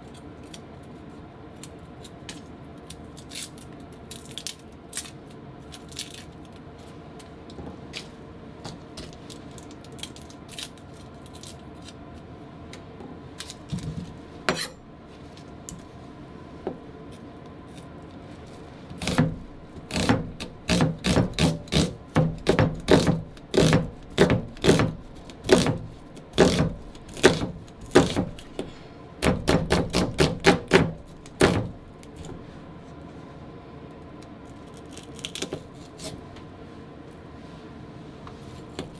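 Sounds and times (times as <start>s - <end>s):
knife chopping on wooden board: 19.0s - 31.8s.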